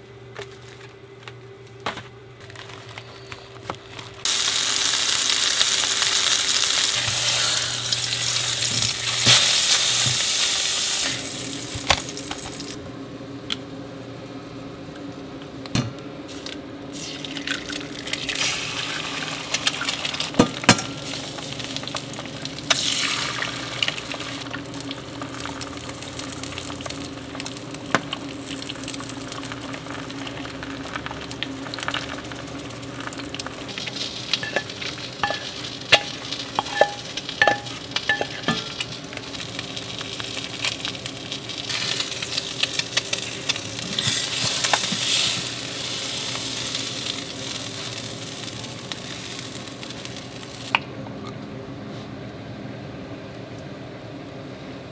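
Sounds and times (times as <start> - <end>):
egg sizzling in a frying pan: 4.2 - 12.8, 16.3 - 50.8.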